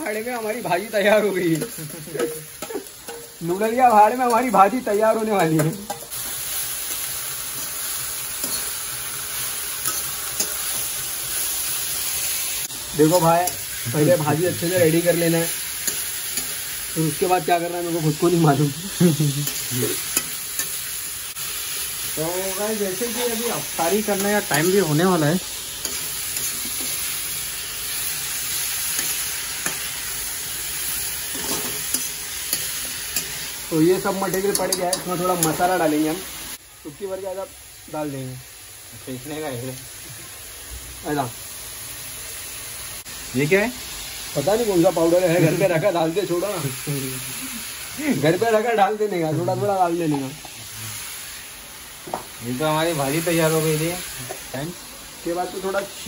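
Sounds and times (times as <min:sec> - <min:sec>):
vegetables sizzling in oil: 0:00.0 - 0:56.0
metal ladle scraping a pan: 0:31.2 - 0:33.4.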